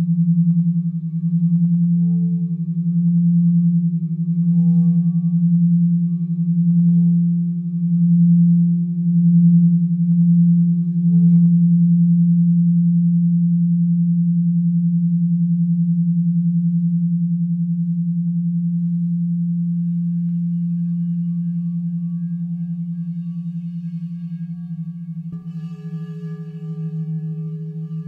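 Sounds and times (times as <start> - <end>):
higher singing bowl tones: 0.0 - 28.0
singing bowl deep tone: 0.0 - 28.0.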